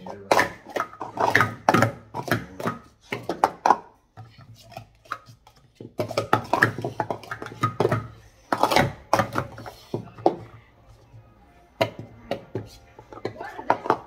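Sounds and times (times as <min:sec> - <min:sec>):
plastic cups clacking: 0:00.0 - 0:14.0.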